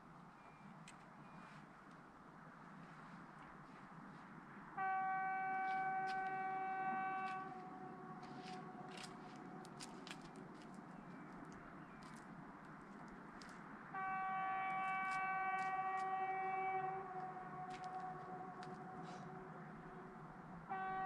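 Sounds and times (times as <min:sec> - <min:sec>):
distant locomotive horn: 0:04.7 - 0:10.3, 0:13.8 - 0:21.0.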